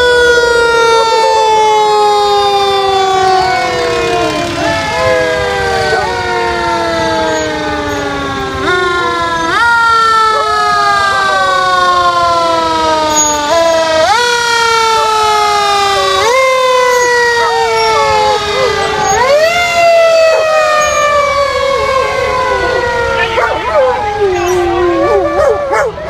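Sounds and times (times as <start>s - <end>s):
fire truck sirens wailing: 0.0s - 26.0s
dog howling: 14.8s - 26.0s.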